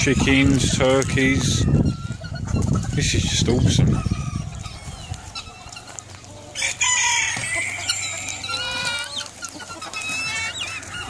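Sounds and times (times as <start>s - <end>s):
chickens clucking: 0.0s - 11.0s
rooster crowing: 6.5s - 9.1s.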